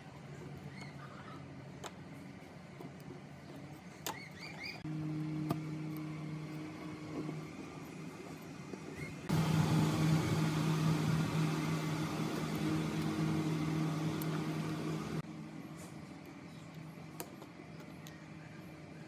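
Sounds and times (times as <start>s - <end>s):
small motor humming: 4.2s - 15.2s.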